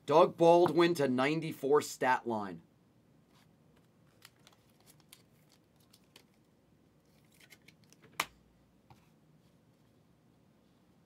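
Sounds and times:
cards rustling and clicking: 3.8s - 8.3s.

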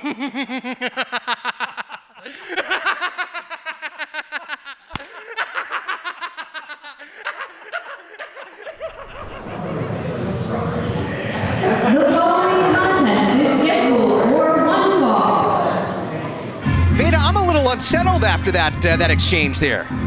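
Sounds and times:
man laughing hard: 0.0s - 10.2s.

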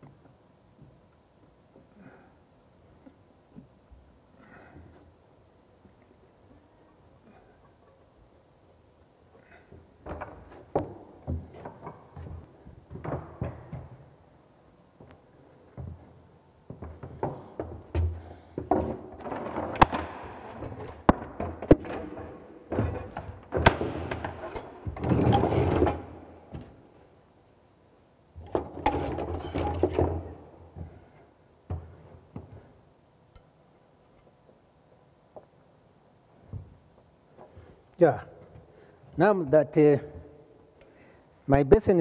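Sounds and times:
hand tools clinking and rattling: 18.7s - 26.3s, 28.5s - 30.4s.

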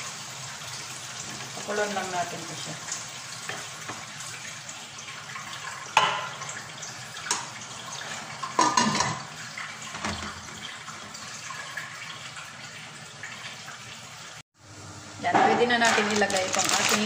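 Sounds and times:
metal lid clanking on pot: 8.4s - 9.3s.

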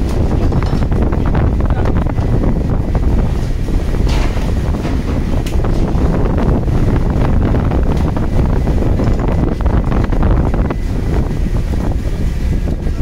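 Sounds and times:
wind buffeting microphone: 0.0s - 13.0s
knocks and clatter on deck: 3.4s - 6.0s.

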